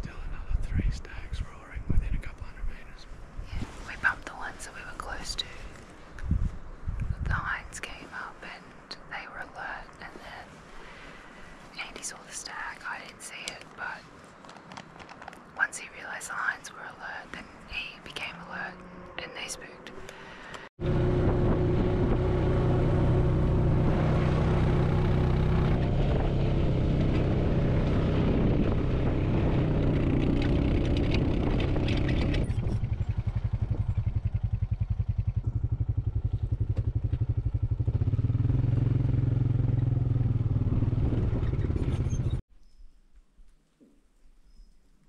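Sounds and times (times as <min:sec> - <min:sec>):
quad bike engine running: 0:20.8 - 0:42.4.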